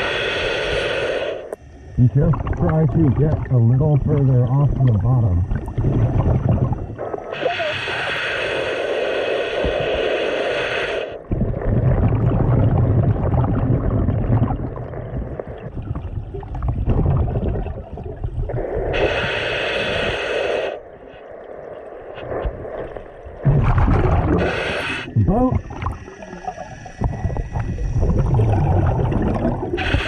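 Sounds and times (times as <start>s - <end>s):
regulator inhalation hiss: 0.0s - 4.5s, 5.2s - 11.3s, 18.5s - 23.4s, 24.3s - 28.5s, 29.7s - 30.0s
gurgling exhaled bubbles: 2.0s - 8.4s, 11.0s - 20.8s, 21.6s - 30.0s.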